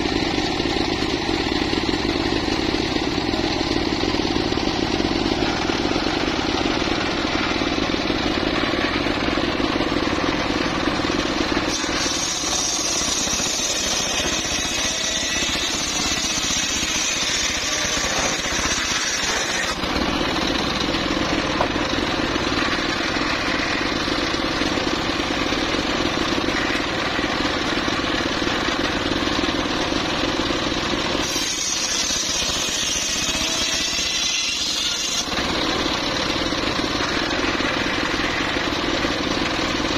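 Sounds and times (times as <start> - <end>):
circular saw cutting wood: 0.0 - 39.9.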